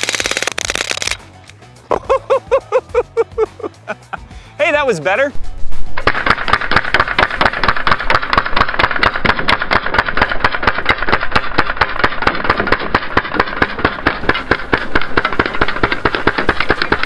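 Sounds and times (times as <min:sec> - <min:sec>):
bb gun firing full-auto: 0:00.0 - 0:01.2, 0:06.0 - 0:17.0
bbs striking cans: 0:06.0 - 0:17.0.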